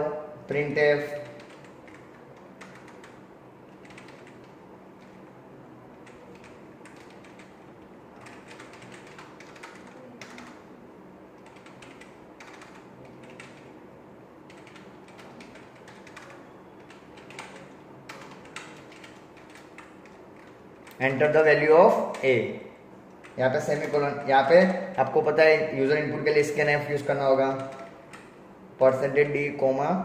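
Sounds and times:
faint steady hum: 0.0 - 30.0
keyboard typing: 1.0 - 5.3, 5.9 - 10.7, 11.4 - 13.8, 14.5 - 22.4, 23.1 - 25.2, 26.4 - 28.4.

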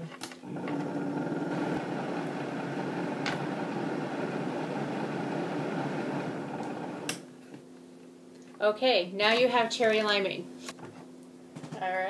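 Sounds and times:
blender motor whirring: 0.4 - 7.1.

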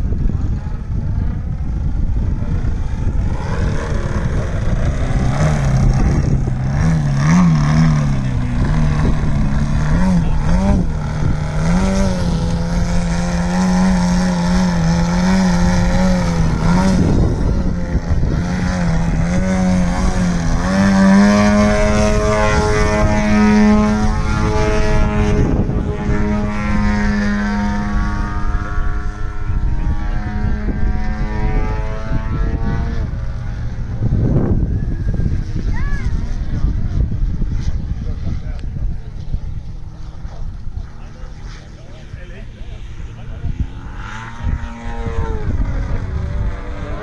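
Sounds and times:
model plane engine and propeller: 0.0 - 47.0.

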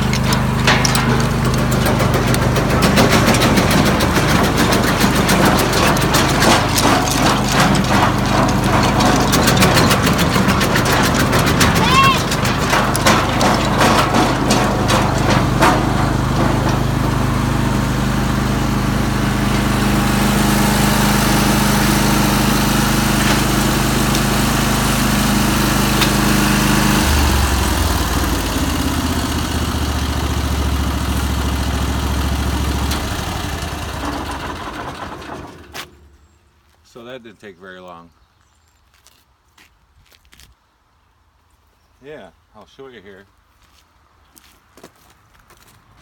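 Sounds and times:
sharp knocks: 0.0 - 17.0
engine running: 0.0 - 36.3.

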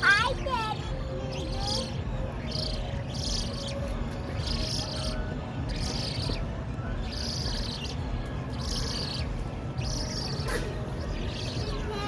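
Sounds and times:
high wheezy bird calls: 0.0 - 12.0.

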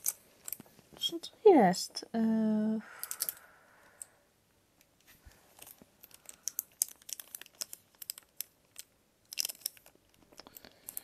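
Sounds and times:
packaging crinkling: 5.3 - 11.0.

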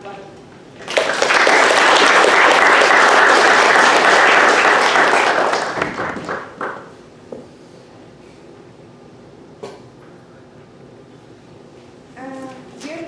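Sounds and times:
audience applauding: 0.8 - 6.9.

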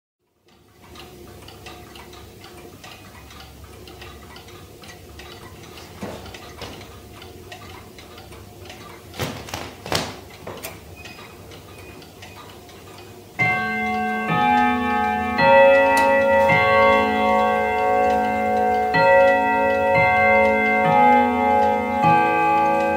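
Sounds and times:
pendulum clock ticking: 0.3 - 22.9
clock chime melody: 13.4 - 22.9.

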